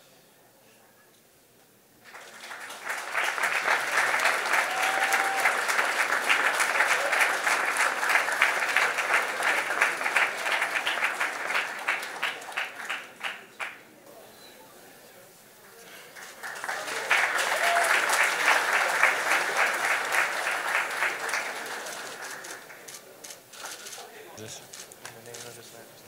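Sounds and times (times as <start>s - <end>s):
audience applauding: 2.0s - 13.9s, 15.6s - 24.1s.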